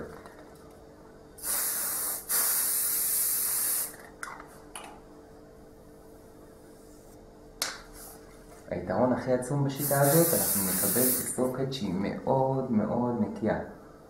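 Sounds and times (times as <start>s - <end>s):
aerosol hairspray spraying: 9.8s - 11.4s.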